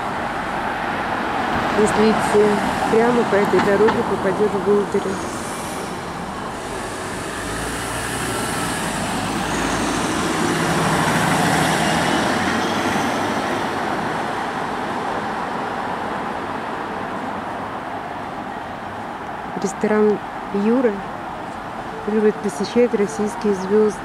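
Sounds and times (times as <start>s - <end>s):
street traffic noise: 0.0s - 24.0s
car driving past: 5.1s - 14.2s.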